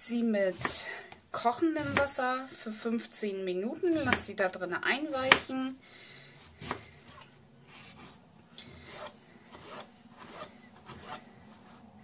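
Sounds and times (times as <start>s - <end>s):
knife slicing potato: 0.5s - 0.8s, 1.5s - 2.2s, 3.8s - 4.4s, 5.0s - 5.6s, 6.6s - 8.2s.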